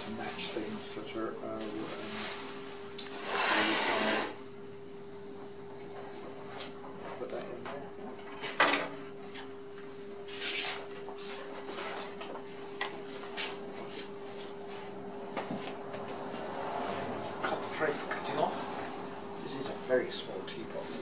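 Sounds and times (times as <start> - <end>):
potter's wheel humming: 0.0 - 8.4.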